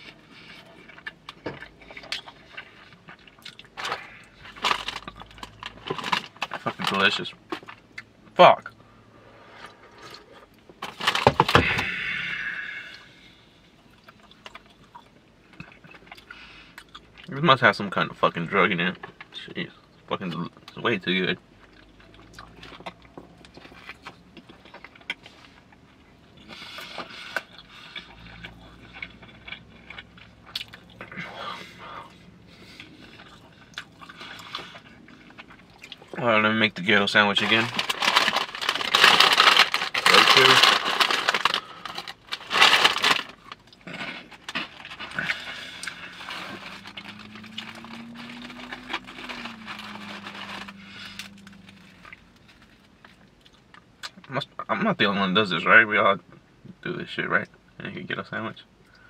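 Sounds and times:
man chewing food: 0.0 - 6.6, 7.4 - 12.1, 13.7 - 17.3, 21.5 - 36.2, 40.8 - 54.2
faint low hum: 0.0 - 59.0
chips crackling and rustling: 0.8 - 7.8, 10.7 - 12.2, 37.0 - 53.8
chip bag crinkling: 3.6 - 7.8, 10.8 - 12.1, 37.0 - 53.6.

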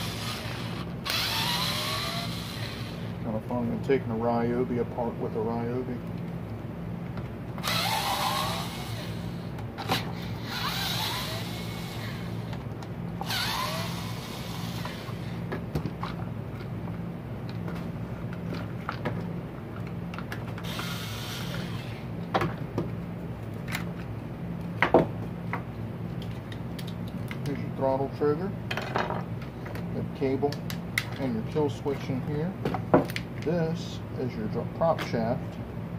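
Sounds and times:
cordless drill whirring: 0.0 - 3.2, 7.6 - 9.5, 10.2 - 12.5, 13.2 - 15.4, 20.6 - 22.0
steady low hum: 0.0 - 35.9.

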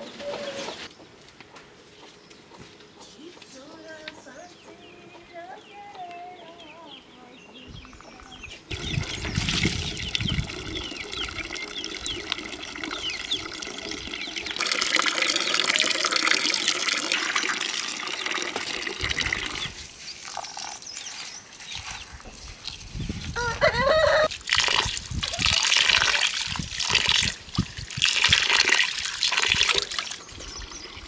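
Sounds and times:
water running and splashing: 8.7 - 31.0.

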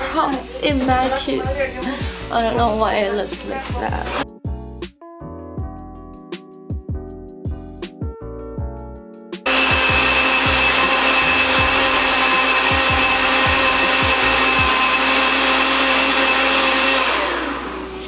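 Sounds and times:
electric blender running: 9.5 - 18.0.

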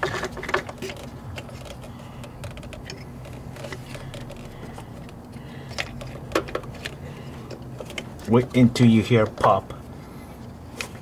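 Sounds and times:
rubber and plastic rubbing: 0.0 - 7.0
steady low hum: 0.0 - 11.0.

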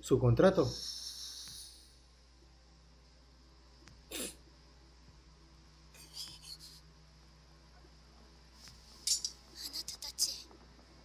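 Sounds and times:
faint hissy sounds: 5.9 - 7.0.

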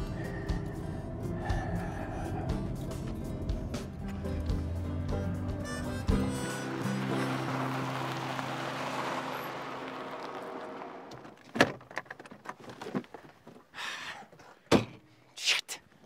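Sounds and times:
background music: 0.0 - 9.5.

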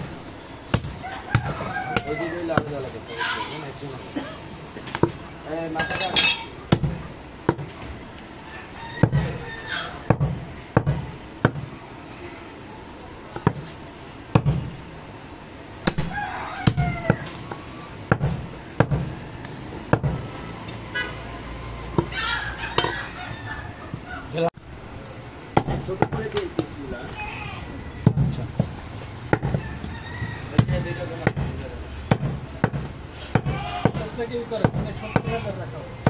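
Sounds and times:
cleaver chopping meat on wood: 6.7 - 7.7, 9.0 - 9.4, 10.1 - 11.7, 15.8 - 17.3, 25.6 - 26.8, 30.6 - 35.5.

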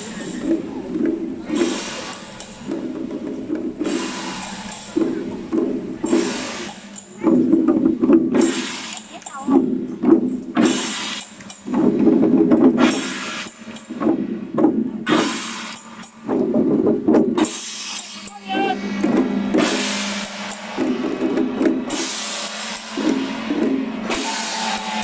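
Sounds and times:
drums and cymbals playing: 0.0 - 25.0
voices: 3.8 - 9.8, 17.8 - 19.2.

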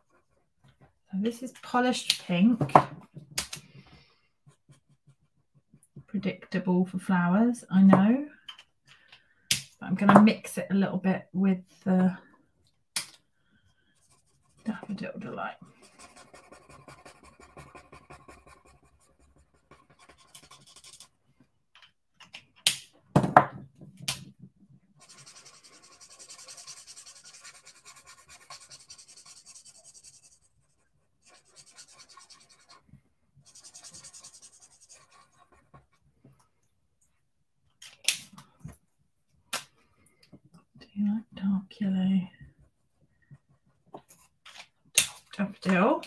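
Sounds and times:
marker scratching on cardstock: 4.4 - 5.8, 14.0 - 21.1, 25.0 - 36.0.

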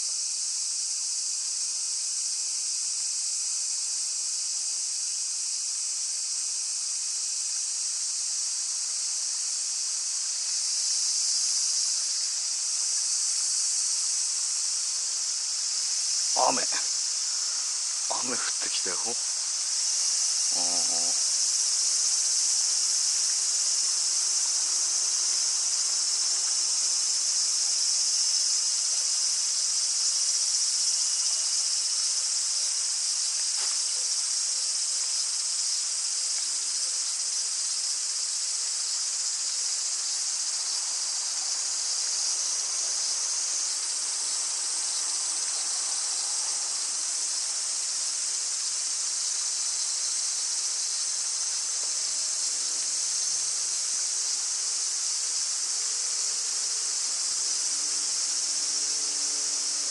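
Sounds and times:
cicadas buzzing: 0.0 - 59.9.

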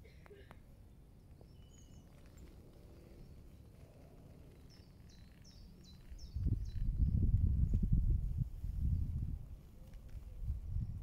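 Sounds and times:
small bird chirping: 0.3 - 8.0.

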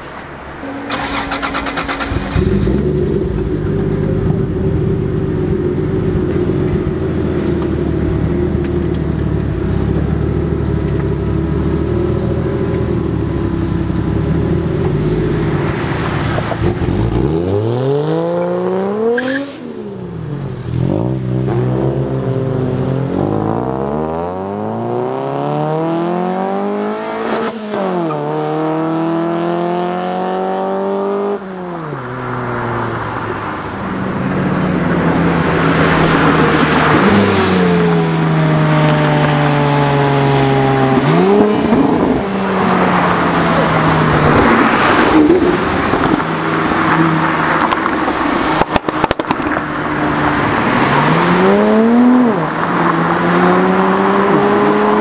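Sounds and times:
sports cars accelerating hard: 0.6 - 55.0.

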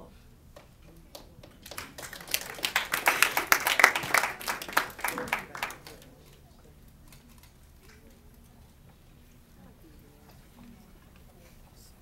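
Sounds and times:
audience applauding: 1.5 - 6.1.

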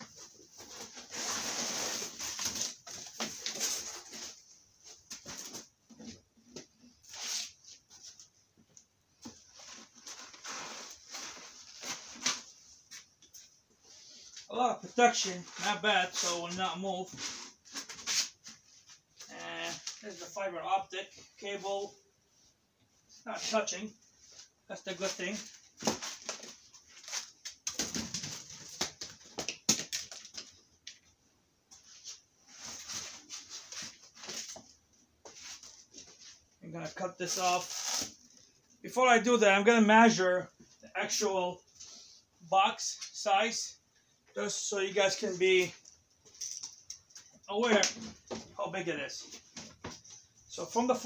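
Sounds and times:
foam blocks rustling and scraping: 0.1 - 5.8.

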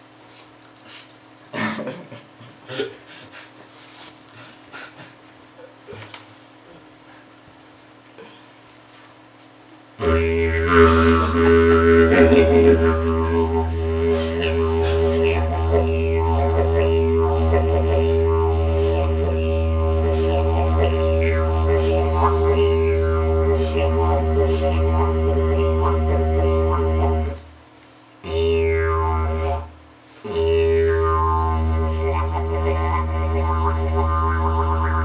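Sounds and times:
didgeridoo drone: 10.0 - 27.5, 28.2 - 35.0.

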